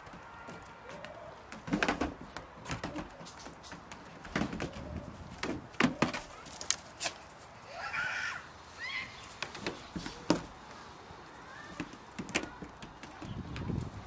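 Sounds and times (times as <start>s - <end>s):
hooves knocking on wooden roof: 0.0s - 6.4s.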